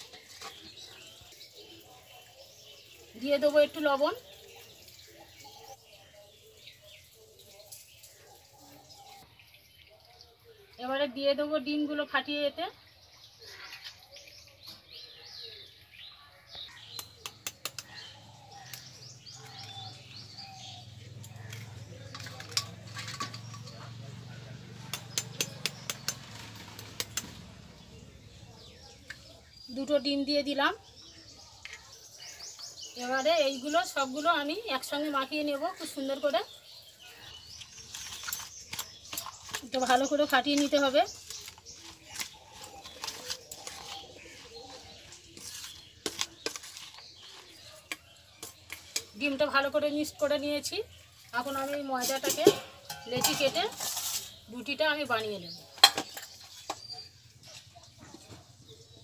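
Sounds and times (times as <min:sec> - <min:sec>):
birds chirping: 0:00.0 - 0:59.0
eggs cracked with a spoon: 0:16.8 - 0:18.0
spoon clinking against steel bowl: 0:52.0 - 0:54.0.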